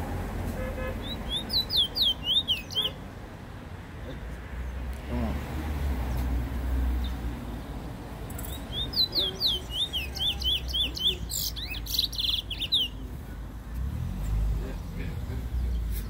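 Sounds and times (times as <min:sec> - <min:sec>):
road traffic rumble: 0:00.0 - 0:16.0
bird singing whistled notes: 0:01.0 - 0:03.0, 0:08.4 - 0:13.0.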